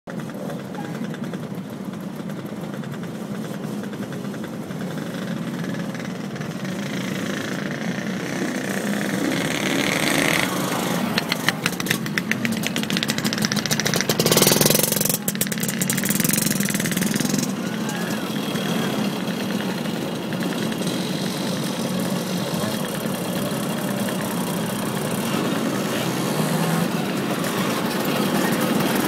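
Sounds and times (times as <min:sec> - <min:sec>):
motorcycle engines running: 0:00.1 - 0:29.0
motorcycle passing by: 0:03.4 - 0:29.0.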